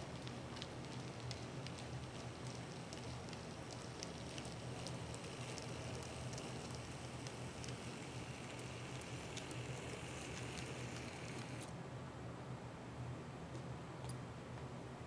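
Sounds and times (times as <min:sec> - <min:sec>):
wheels clicking over rail joints: 0:00.2 - 0:11.7
model train running hum: 0:04.3 - 0:11.7.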